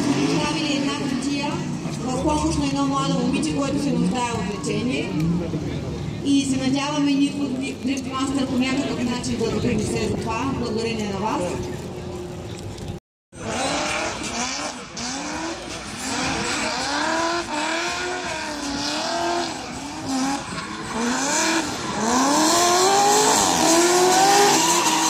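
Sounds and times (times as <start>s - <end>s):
car engine revving: 0.0s - 4.2s, 13.4s - 25.0s.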